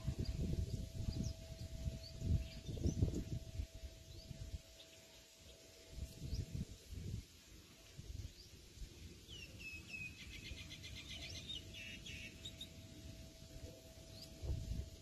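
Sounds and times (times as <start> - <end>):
faint steady tone: 0.0 - 15.0
birds chirping: 9.3 - 14.7.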